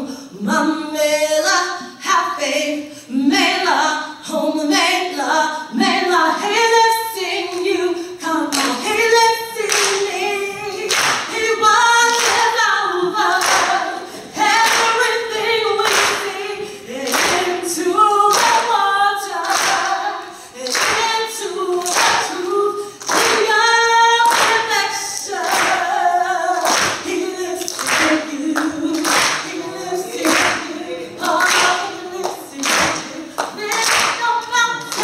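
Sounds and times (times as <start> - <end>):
woman singing gospel: 0.0 - 35.0
hand clapping: 8.5 - 8.9, 9.6 - 10.1, 10.8 - 12.6, 13.4 - 13.9, 14.6 - 15.1, 15.8 - 16.3, 17.0 - 17.6, 18.3 - 18.8, 19.4 - 20.0, 20.6 - 23.6, 24.2 - 25.9, 26.6 - 35.0.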